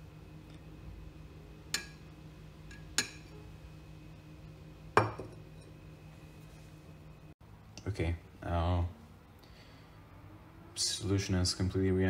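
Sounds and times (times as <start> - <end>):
glassware clinking: 2.7 - 3.4, 5.0 - 5.8.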